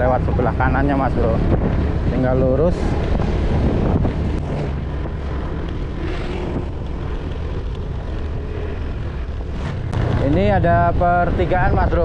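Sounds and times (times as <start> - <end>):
scooter engine cruising: 0.0 - 11.8
wind and road noise: 0.0 - 12.0.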